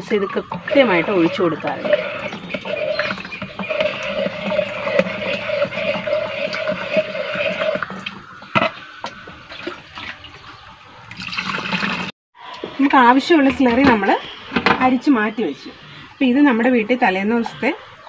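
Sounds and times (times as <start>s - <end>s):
steady hum: 0.0s - 9.8s
liquid sloshing and splashing: 0.0s - 12.1s.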